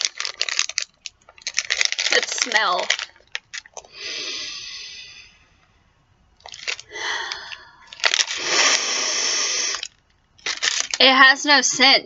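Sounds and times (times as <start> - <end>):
breathy hissing: 3.8 - 5.6, 6.8 - 10.0
person sniffing through nose: 8.4 - 9.9.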